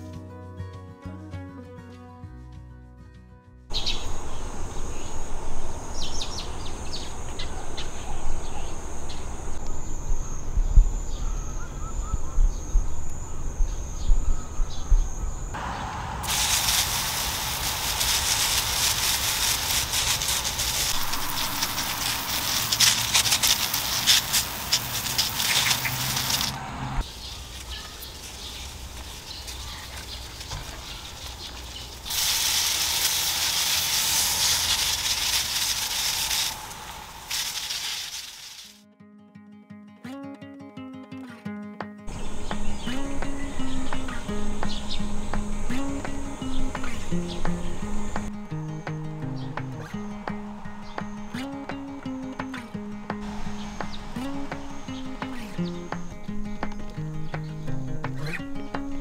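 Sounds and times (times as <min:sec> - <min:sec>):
high insect buzz: 0:03.7 - 0:38.8, 0:42.1 - 0:48.7, 0:53.2 - 0:56.9
sprayer hissing: 0:15.6 - 0:38.8, 0:42.1 - 0:48.3, 0:53.2 - 0:56.1.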